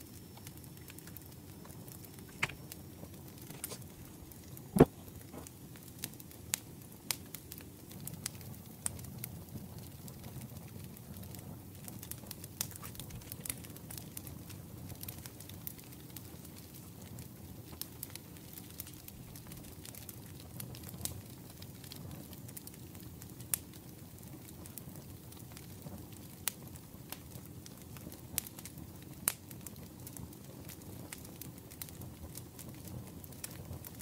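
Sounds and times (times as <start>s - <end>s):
wood fire crackling: 0.0s - 34.0s
sharp pops of fire: 0.2s - 23.8s.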